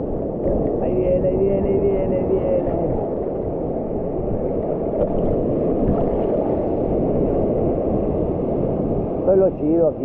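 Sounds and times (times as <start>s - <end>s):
water rushing around rocks: 0.0s - 9.8s.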